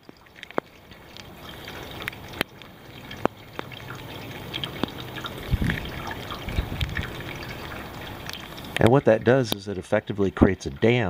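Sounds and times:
water dripping: 0.0 - 11.0.

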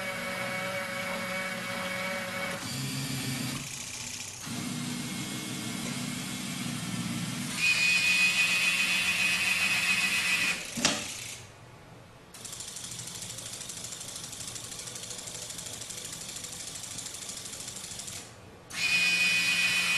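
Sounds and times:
small electric motors whirring: 0.0 - 11.4, 15.8 - 19.9.

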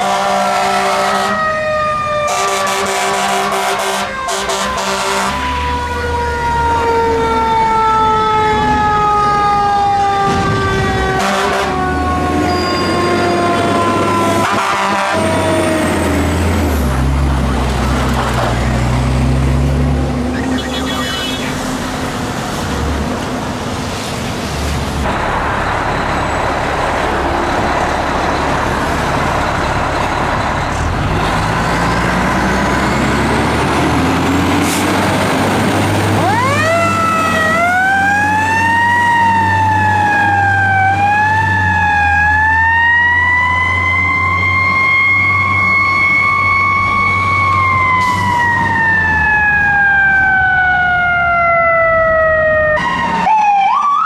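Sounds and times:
siren wailing: 0.0 - 17.2, 20.3 - 21.9, 36.0 - 54.0
diesel engine rumbling: 0.0 - 53.4.

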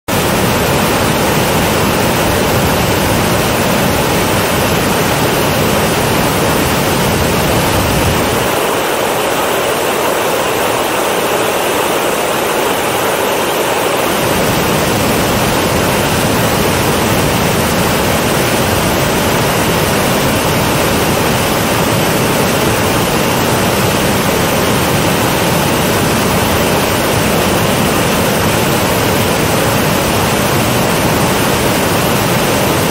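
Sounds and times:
waterfall rushing: 0.1 - 32.9.

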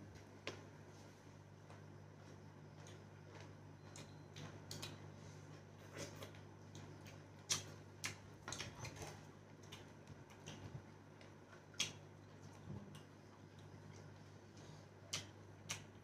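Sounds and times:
chewing and lip smacks: 2.8 - 5.1, 5.8 - 16.0.

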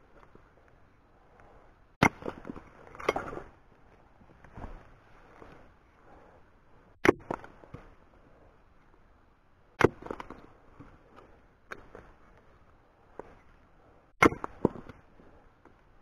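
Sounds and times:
hatchet chopping wood: 2.0 - 3.2, 9.8 - 10.4, 14.2 - 15.0.

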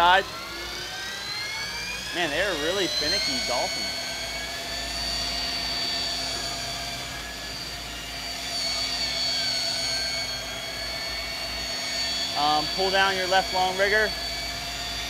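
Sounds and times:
boat engines rumbling with whine: 0.0 - 15.0.

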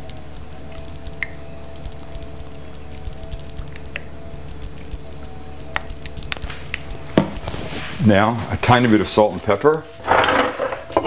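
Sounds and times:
light metallic jingling: 0.0 - 8.0
steady low hum: 0.0 - 11.0.

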